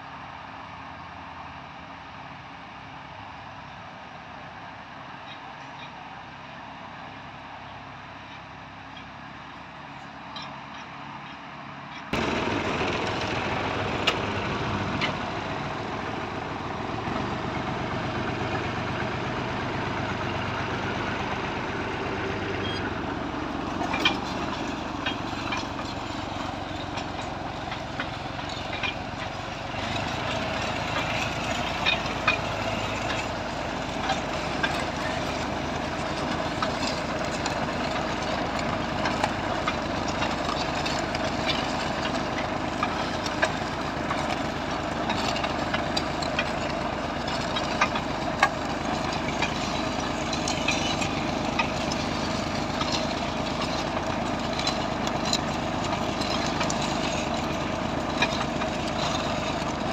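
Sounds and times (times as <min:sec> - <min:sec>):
tractor engine running: 0:00.0 - 0:59.9
sharp knocks and rattles: 0:12.1 - 0:59.9.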